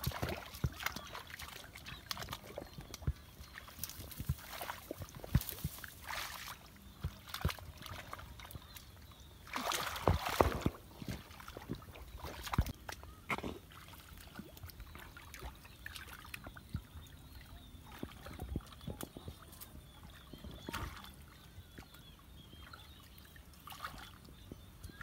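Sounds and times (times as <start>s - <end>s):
hands splashing in muddy water: 0.0s - 12.8s.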